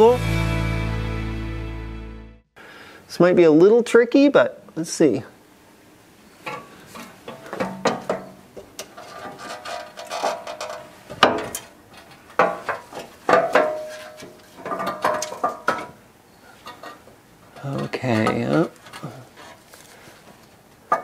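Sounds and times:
sheet-metal muffler knocking and scraping: 6.5s - 16.0s, 16.6s - 19.6s.

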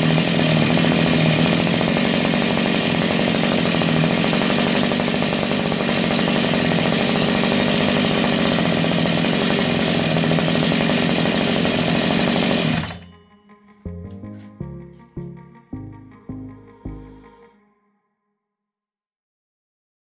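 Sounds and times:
two-stroke engine running: 0.0s - 13.1s.

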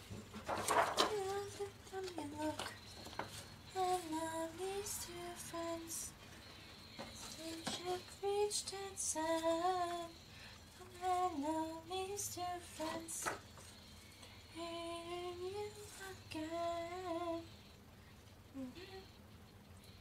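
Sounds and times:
paper rustling and pages turning: 0.0s - 4.1s
woman singing unaccompanied: 0.7s - 6.2s, 6.9s - 13.4s, 14.5s - 17.6s, 18.5s - 19.2s.

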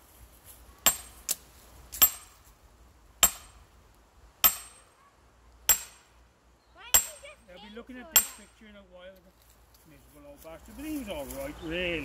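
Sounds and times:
sledgehammer striking steel wedges: 0.8s - 1.2s, 1.9s - 2.4s, 3.2s - 3.6s, 4.4s - 4.9s, 5.7s - 6.1s, 7.0s - 7.2s, 8.2s - 8.5s.

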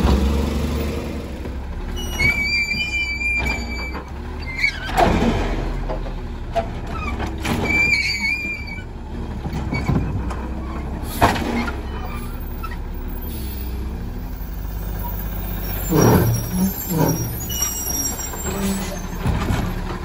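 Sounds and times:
mechanical arm screeching: 2.0s - 5.0s, 7.6s - 8.9s, 14.3s - 19.4s.

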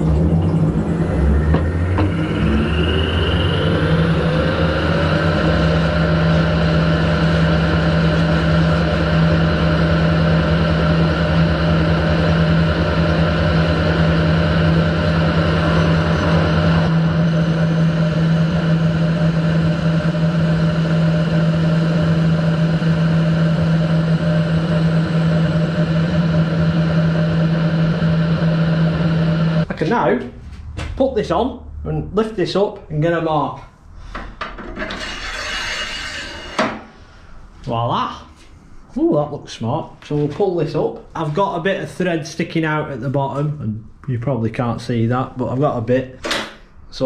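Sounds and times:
metal lathe hum and whine: 0.0s - 29.7s, 34.7s - 36.9s.

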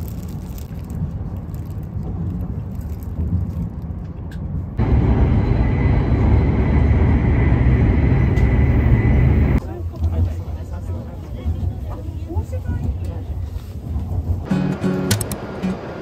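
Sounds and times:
train carriage rumble: 0.0s - 16.0s
thin steady whine: 4.8s - 9.6s.

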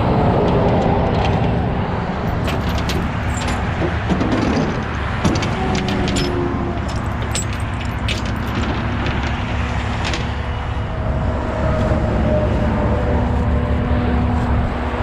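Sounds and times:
low vehicle rumble: 0.0s - 15.0s
tow chain clinking on steel deck: 2.2s - 10.8s.

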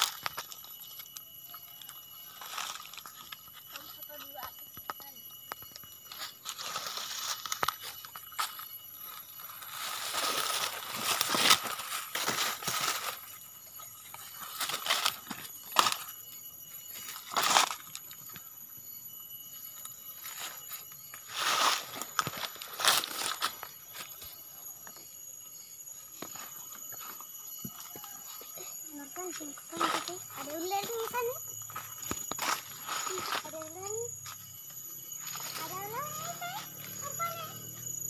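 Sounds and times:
faint high-pitched ringing tones: 0.0s - 38.0s
footsteps in dry leaves: 6.1s - 13.4s, 20.2s - 24.2s, 35.2s - 37.1s.

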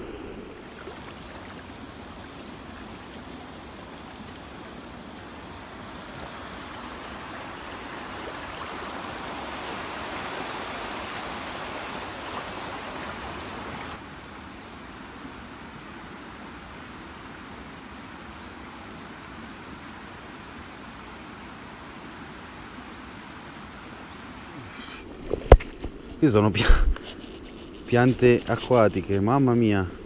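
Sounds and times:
river current rushing: 0.0s - 14.4s.

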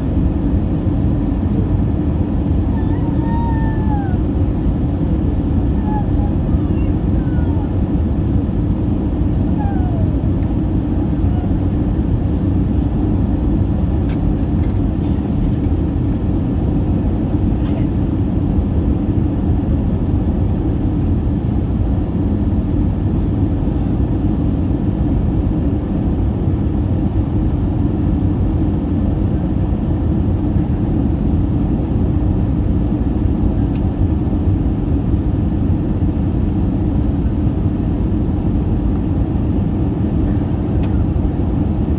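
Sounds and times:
jet engine roar in cabin: 0.0s - 41.9s.

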